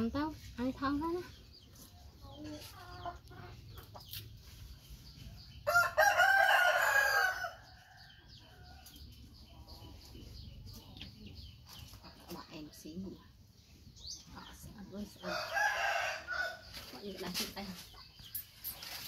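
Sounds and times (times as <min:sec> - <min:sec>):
rooster crowing: 0:05.7 - 0:07.6.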